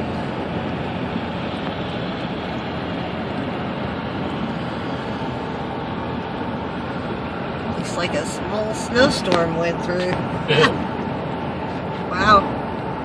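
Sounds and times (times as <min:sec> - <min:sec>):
car engine: 0:00.0 - 0:13.0
tyres on wet road: 0:00.0 - 0:13.0.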